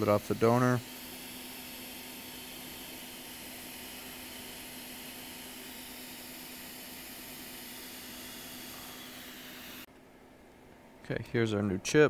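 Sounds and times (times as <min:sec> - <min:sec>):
faint constant hum: 0:09.9 - 0:12.0.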